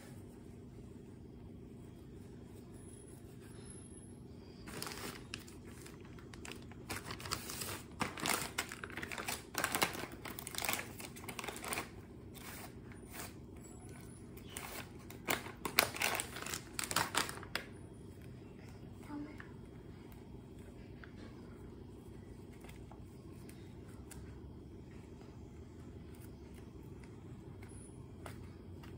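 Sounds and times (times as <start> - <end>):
plastic packet crinkling: 4.7 - 12.0, 14.4 - 17.7.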